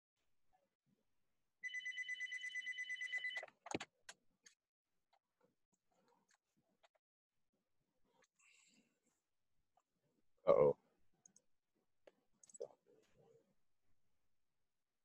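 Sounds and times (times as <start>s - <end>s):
electronic telephone ring: 1.6s - 3.5s.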